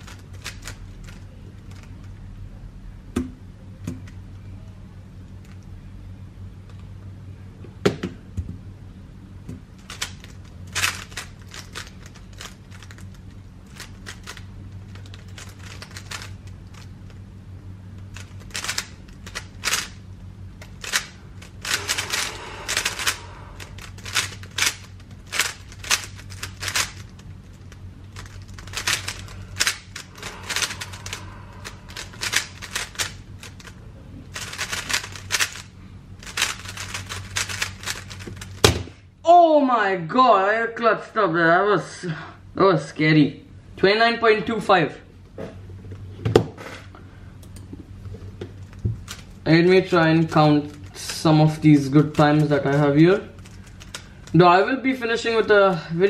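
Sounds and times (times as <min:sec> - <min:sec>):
faint low hum: 0:00.0 - 0:56.0
puzzle cube layers clacking: 0:20.8 - 0:27.2, 0:28.2 - 0:33.7, 0:34.4 - 0:35.6.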